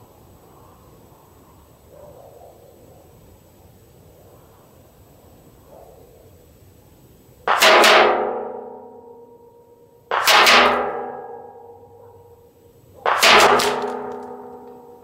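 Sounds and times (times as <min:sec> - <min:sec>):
metal barrel ringing: 0:07.5 - 0:09.2, 0:10.1 - 0:12.0, 0:13.1 - 0:15.0
bullets hitting plywood target: 0:13.1 - 0:14.9.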